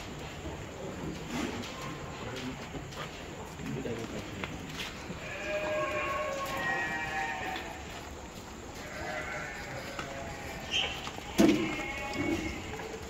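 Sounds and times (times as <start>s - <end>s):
goats bleating: 5.1s - 8.0s, 8.7s - 13.0s.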